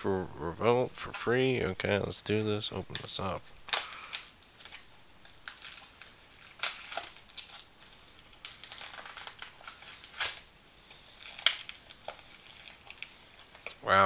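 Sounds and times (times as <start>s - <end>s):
cardboard packaging ripping: 3.7s - 13.8s.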